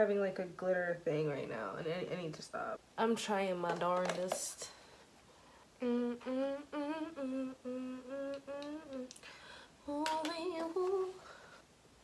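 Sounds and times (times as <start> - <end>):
woman humming: 5.8 - 9.2
faint clicks: 8.3 - 9.3.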